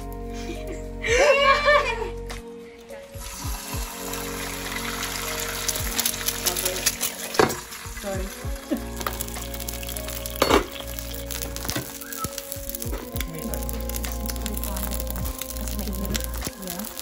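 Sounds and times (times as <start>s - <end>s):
egg sizzling in oil: 3.2s - 17.0s.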